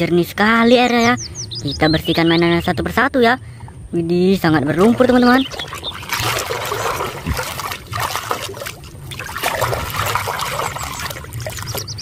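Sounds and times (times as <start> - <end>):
water sloshing in a plastic tub: 3.5 - 12.0
hand scrubbing toy underwater: 4.7 - 12.0.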